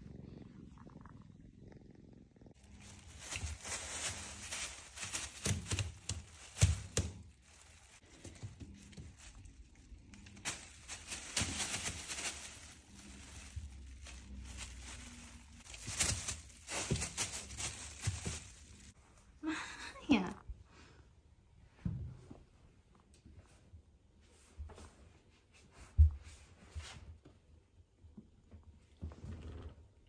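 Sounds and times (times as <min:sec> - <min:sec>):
kittens thumping on wooden floor: 0:03.2 - 0:07.3.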